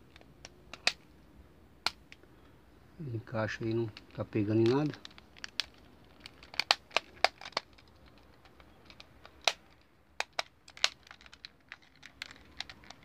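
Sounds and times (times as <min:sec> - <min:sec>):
plastic faceplate clicking: 0:00.1 - 0:01.0, 0:03.9 - 0:13.0.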